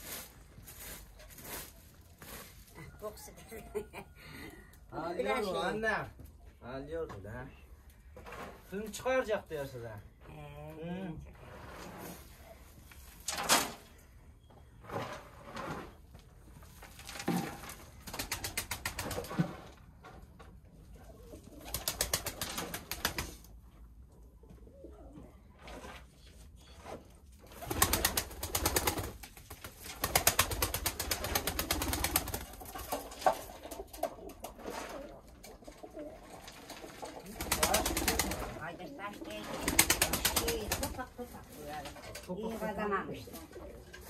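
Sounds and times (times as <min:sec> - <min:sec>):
pigeons cooing: 0:33.8 - 0:38.5.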